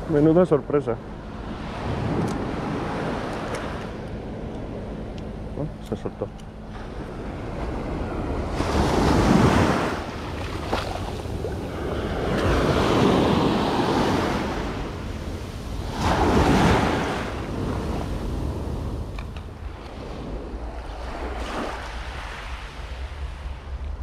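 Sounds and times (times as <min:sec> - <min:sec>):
sea waves washing on shore: 0:05.9 - 0:24.0
wind buffeting microphone: 0:06.5 - 0:24.0.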